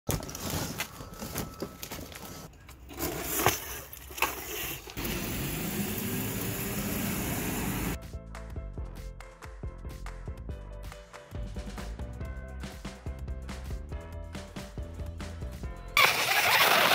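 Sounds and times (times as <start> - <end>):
cardboard and metal parts clattering: 0.1 - 4.5
small motorbike motor running: 16.0 - 16.9.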